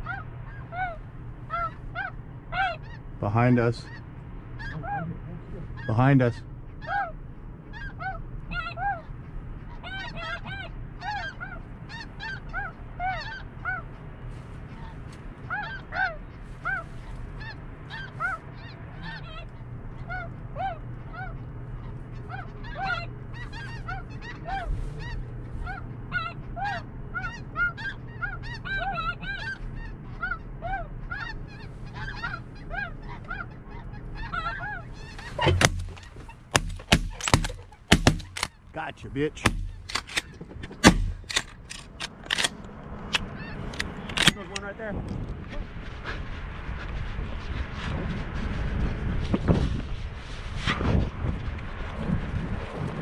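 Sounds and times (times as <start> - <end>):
geese honking: 0.0 - 42.5
shotgun blasts: 35.4 - 38.5, 39.3 - 42.5.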